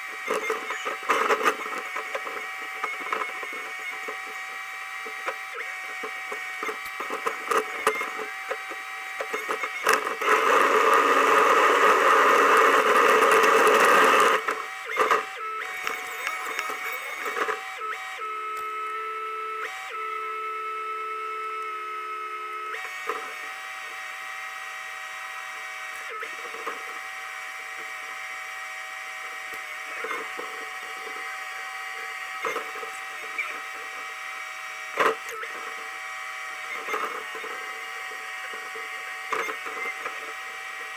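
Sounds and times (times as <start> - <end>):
excavator engine whine: 0.0 - 40.9.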